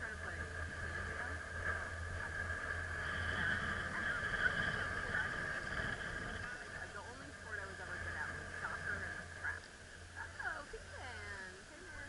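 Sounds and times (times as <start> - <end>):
chairlift high whine: 0.0 - 11.4
higher whine: 0.0 - 11.8
low hum: 0.0 - 12.0.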